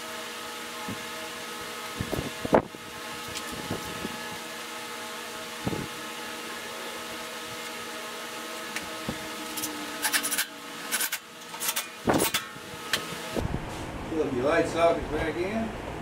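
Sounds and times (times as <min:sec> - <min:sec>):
steady mechanical hum: 0:00.0 - 0:16.0
metal parts clinking and rattling: 0:09.5 - 0:12.6.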